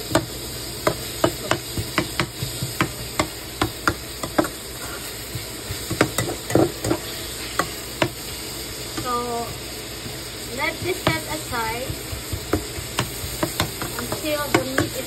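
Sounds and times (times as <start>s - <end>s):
meat sizzling: 0.0s - 15.0s
spatula scraping a frying pan: 0.8s - 8.3s.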